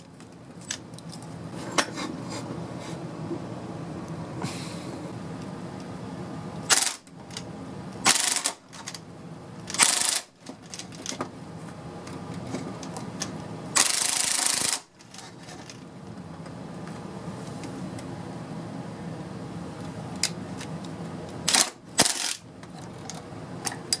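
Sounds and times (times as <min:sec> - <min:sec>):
low steady hum: 0:00.0 - 0:24.0
impact wrench hammering: 0:13.8 - 0:14.9, 0:21.5 - 0:22.4.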